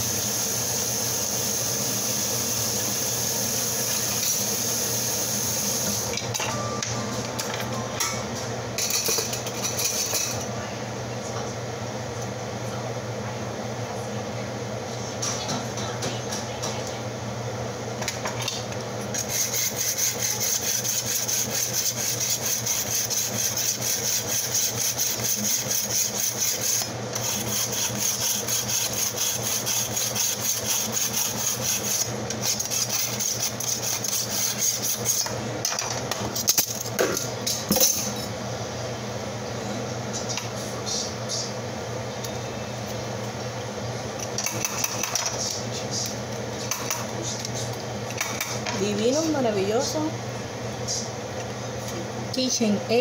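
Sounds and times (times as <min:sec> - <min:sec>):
knife scraping through sharpener: 0:19.2 - 0:35.3.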